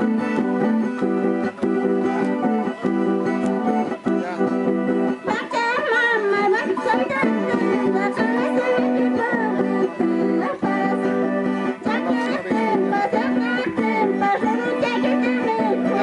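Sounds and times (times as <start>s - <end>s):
charangos strummed: 0.0s - 16.0s
woman singing with vibrato: 5.2s - 16.0s.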